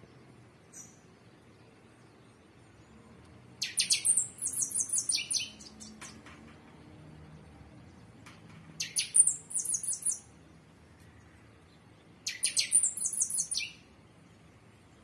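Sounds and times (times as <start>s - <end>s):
small bird chirping: 0.6s - 2.9s, 3.6s - 6.3s, 8.7s - 10.4s, 11.0s - 14.0s.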